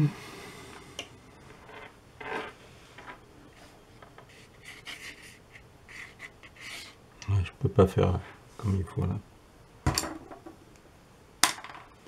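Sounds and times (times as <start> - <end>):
paintbrush swishing on paper: 4.3 - 7.0.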